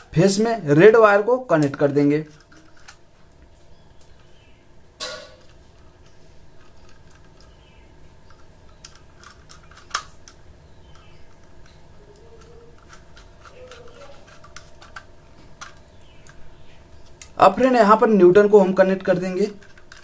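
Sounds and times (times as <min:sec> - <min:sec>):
screwdriver scraping: 0:10.9 - 0:15.8.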